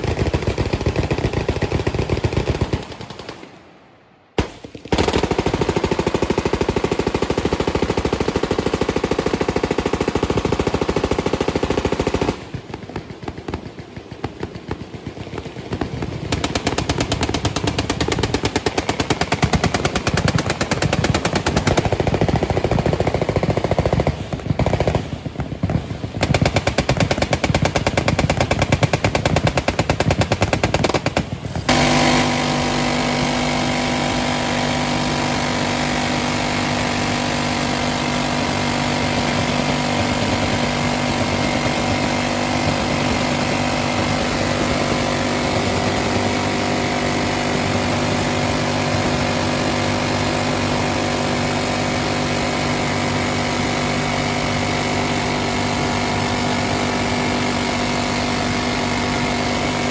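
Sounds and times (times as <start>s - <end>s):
minigun firing: 4.3s - 14.9s, 15.7s - 51.7s.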